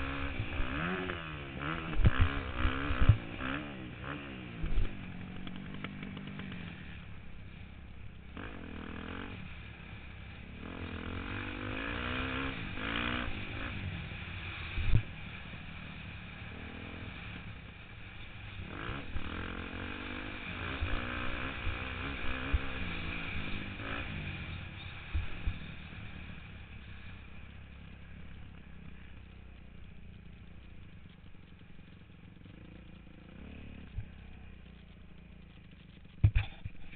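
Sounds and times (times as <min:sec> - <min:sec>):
dirt bike engine revving: 0:00.0 - 0:07.4, 0:08.3 - 0:29.3, 0:30.8 - 0:36.9.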